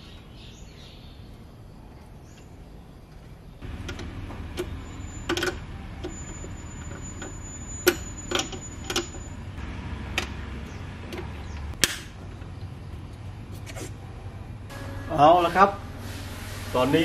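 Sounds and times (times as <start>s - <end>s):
steady low hum: 9.2s - 16.7s.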